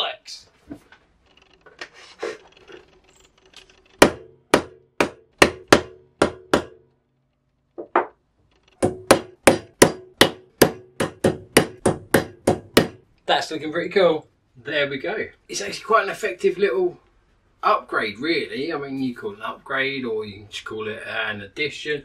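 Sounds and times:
hammer tapping metal punch: 0:03.9 - 0:06.9, 0:07.8 - 0:13.0.

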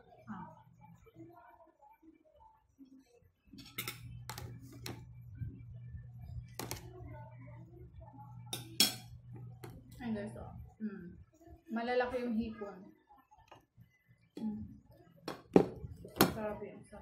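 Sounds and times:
low steady hum: 0:03.5 - 0:12.7
metal spoon clinking on plate: 0:03.6 - 0:04.2, 0:08.5 - 0:09.2.

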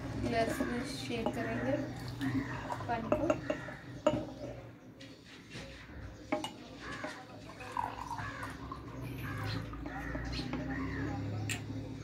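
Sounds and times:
water pouring between glasses: 0:01.9 - 0:04.4, 0:06.4 - 0:10.7.

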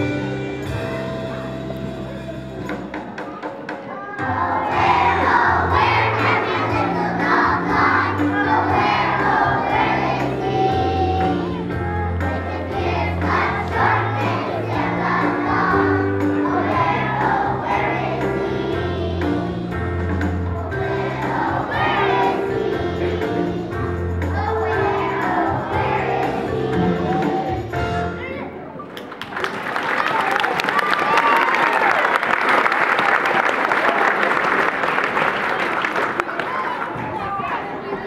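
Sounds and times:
instrumental accompaniment with bass: 0:00.0 - 0:28.4
children singing together: 0:04.2 - 0:27.8.

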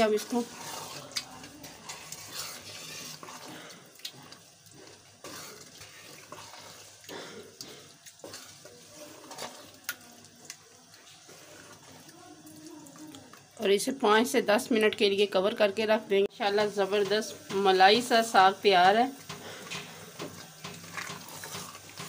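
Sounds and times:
wet squelching and sloshing: 0:00.0 - 0:13.6.

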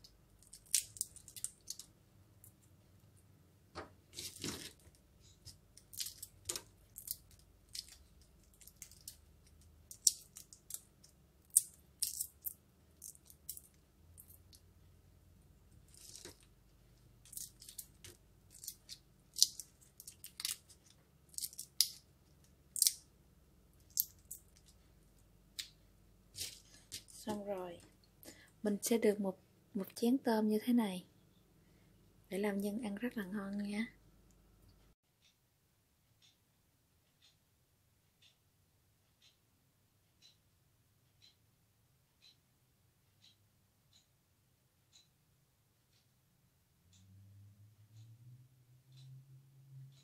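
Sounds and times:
shrimp shells crackling: 0:00.4 - 0:01.9, 0:05.8 - 0:14.6, 0:15.8 - 0:16.5, 0:17.2 - 0:22.0, 0:22.7 - 0:23.0, 0:23.8 - 0:24.8.

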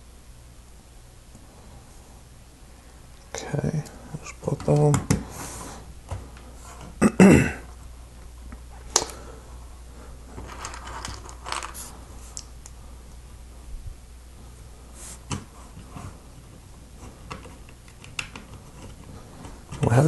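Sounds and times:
loose plastic pieces rustling: 0:10.3 - 0:12.7.

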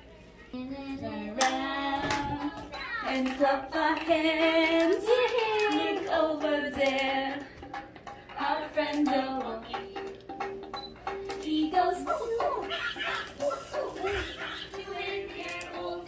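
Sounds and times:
person singing children's song: 0:00.4 - 0:16.0.

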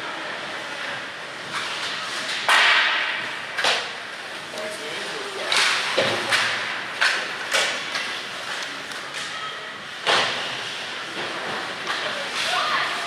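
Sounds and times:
hockey sticks striking puck: 0:01.5 - 0:04.0, 0:05.5 - 0:09.4, 0:10.0 - 0:13.0.

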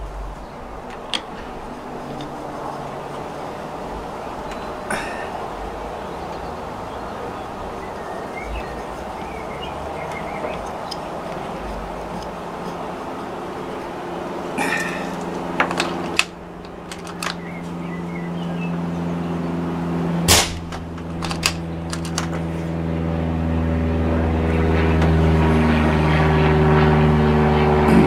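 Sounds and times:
aircraft engine droning overhead: 0:00.0 - 0:28.0
suppressed rifle shot: 0:20.3 - 0:20.9.

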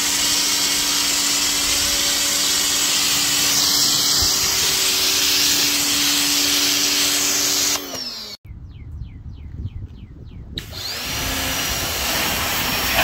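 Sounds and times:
pressure washer spray hissing: 0:11.8 - 0:13.0.

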